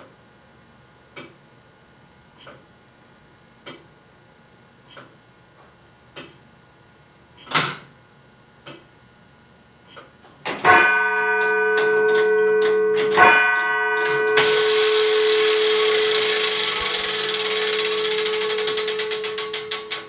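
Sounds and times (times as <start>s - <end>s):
tower bell ringing: 10.6s - 20.0s
mechanism whirring: 10.7s - 20.0s
clock movement ticking: 11.0s - 20.0s
striking gear clicks: 15.5s - 20.0s.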